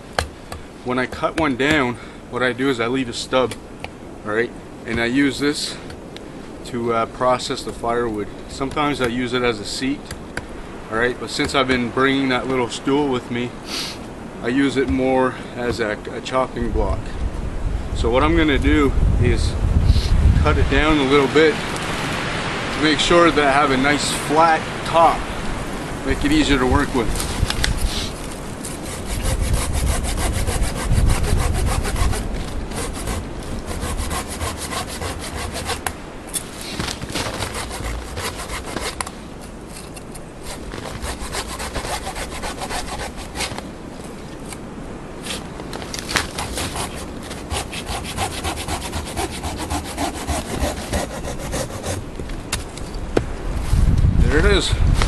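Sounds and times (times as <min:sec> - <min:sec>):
hand saw cutting wood: 0:27.2 - 0:39.1, 0:39.7 - 0:43.6, 0:46.1 - 0:52.0.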